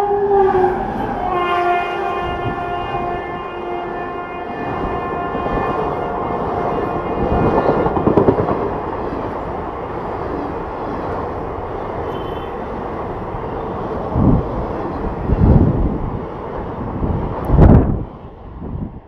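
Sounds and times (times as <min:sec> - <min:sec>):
locomotive horn: 0:00.0 - 0:08.0, 0:12.0 - 0:12.6
train wheels rumbling on rails: 0:00.0 - 0:19.0.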